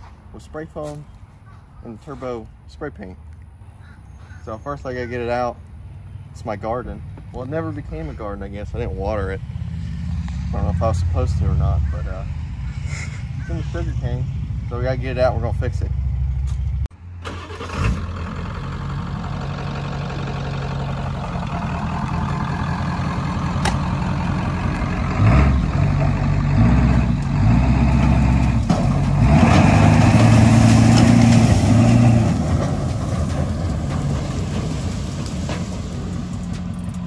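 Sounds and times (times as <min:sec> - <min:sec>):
diesel truck engine revving: 0:12.4 - 0:37.0.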